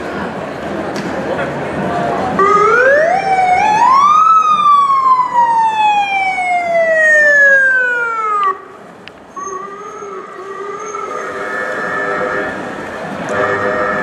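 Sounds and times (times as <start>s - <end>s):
ambulance siren wail: 2.4s - 8.7s, 9.4s - 14.0s.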